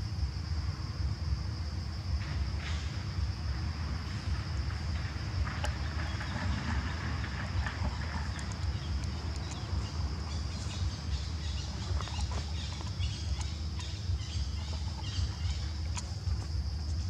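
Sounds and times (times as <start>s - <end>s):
low rumble: 0.2s - 17.0s
faint clicks and rustles: 4.7s - 17.0s.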